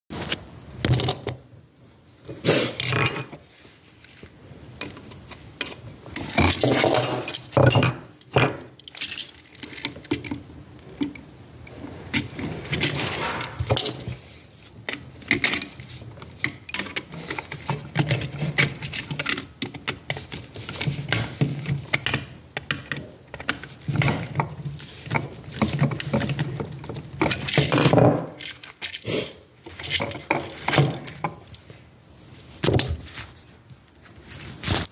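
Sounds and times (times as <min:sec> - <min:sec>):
metallic rattling of tools: 0:05.6 - 0:10.4, 0:12.1 - 0:14.2, 0:14.9 - 0:31.4.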